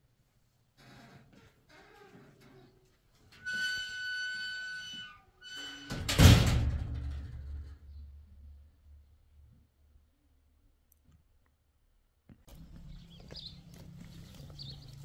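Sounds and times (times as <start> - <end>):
metal door hinge squealing: 3.3 - 6.7
metal door banging shut: 5.5 - 7.9.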